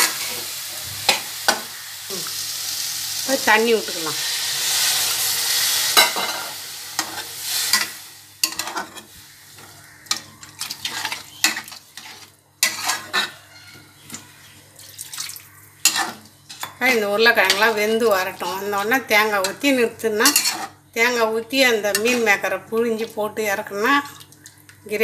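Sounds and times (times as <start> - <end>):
water sizzling in hot pan: 0.0 - 13.2
metal spatula scraping pan: 5.6 - 14.1, 15.8 - 16.8, 20.2 - 20.8.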